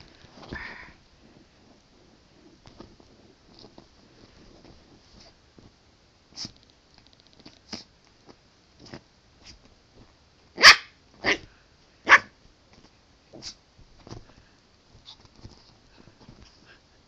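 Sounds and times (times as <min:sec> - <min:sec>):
puppy barking: 0:10.6 - 0:11.4, 0:12.1 - 0:12.3.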